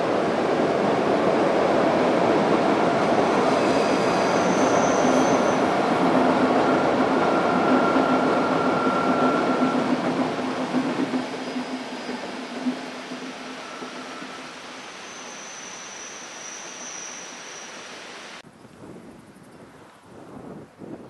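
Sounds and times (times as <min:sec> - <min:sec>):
train rumbling over bridge: 0:00.0 - 0:18.0
faint wheel squeal: 0:03.2 - 0:05.7, 0:13.6 - 0:17.9.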